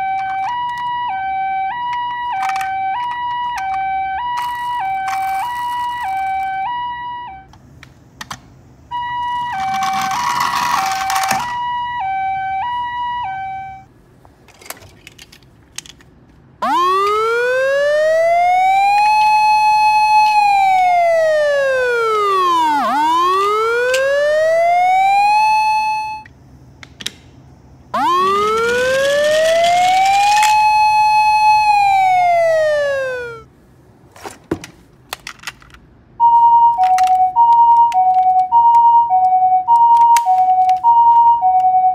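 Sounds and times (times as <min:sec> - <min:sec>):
two-tone hi-lo siren: 0:00.0 - 0:07.5, 0:08.9 - 0:13.9, 0:16.6 - 0:26.3, 0:28.0 - 0:33.5, 0:36.7 - 0:41.9
wailing siren: 0:00.0 - 0:07.5, 0:08.9 - 0:13.9, 0:16.6 - 0:26.3, 0:27.9 - 0:33.5, 0:36.7 - 0:41.9.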